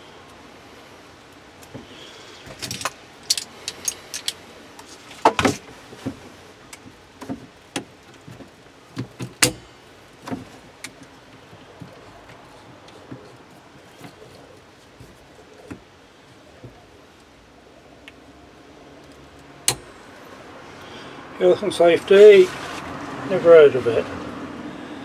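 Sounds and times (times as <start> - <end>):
metal clamp clicking and clanking: 2.5 - 4.4.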